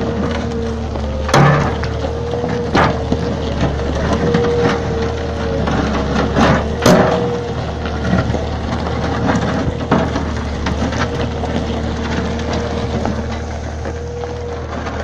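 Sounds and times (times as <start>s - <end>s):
diesel excavator engine running: 0.0s - 15.0s.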